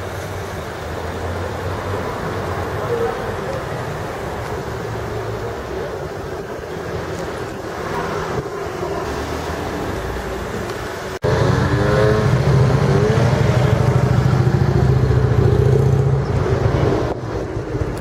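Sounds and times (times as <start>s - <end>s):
vehicle engines in traffic: 0.0s - 18.0s
engine revving: 11.2s - 17.2s.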